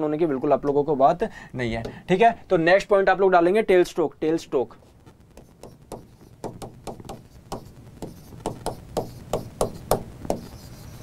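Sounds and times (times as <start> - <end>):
pen tapping on glass: 5.6 - 10.6.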